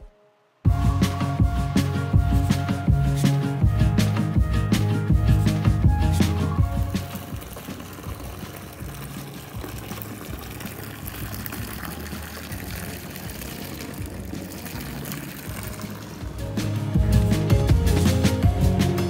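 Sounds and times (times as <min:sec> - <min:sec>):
faint music: 0:00.0 - 0:19.0
rushing water: 0:06.5 - 0:18.6.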